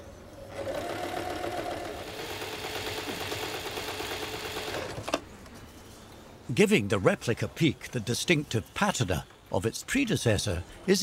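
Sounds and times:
sewing machine motor hum: 0.5s - 5.1s.

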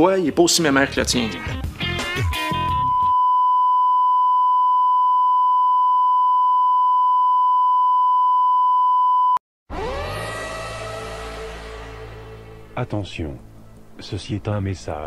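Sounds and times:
loud high test tone beep: 2.2s - 9.4s
electronic tone chord over drone: 9.7s - 12.8s.

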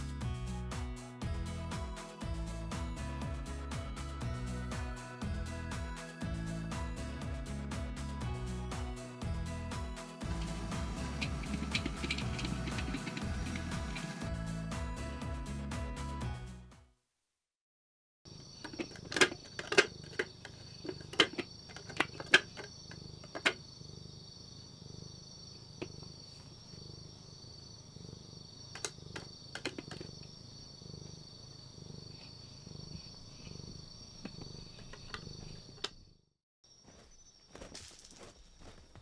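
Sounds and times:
cat purring: 10.2s - 14.2s, 19.4s - 35.9s
crickets chirring: 18.3s - 39.0s.

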